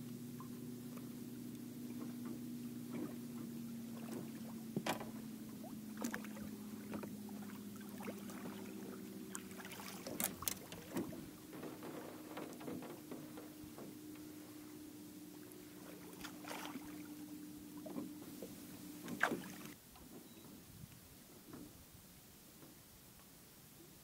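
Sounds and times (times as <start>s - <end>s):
water splashes: 0.0s - 19.8s
steady low hum: 0.0s - 20.7s
fish knocking against boat: 2.0s - 5.3s.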